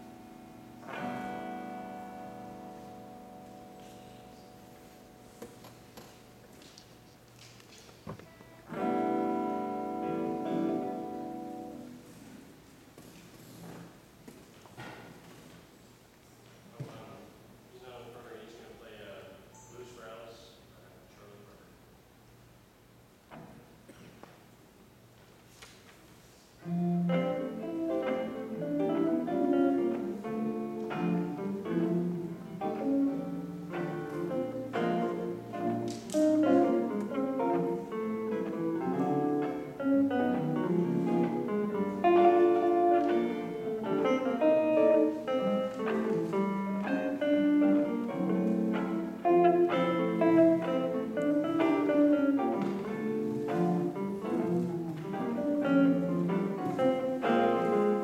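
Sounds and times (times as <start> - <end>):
electric guitars playing: 0.0 - 12.6, 26.6 - 58.0.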